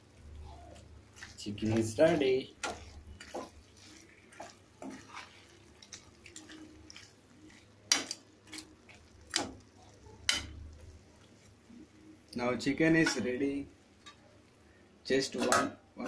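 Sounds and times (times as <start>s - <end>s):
spoon stirring thick curry: 0.2s - 11.7s.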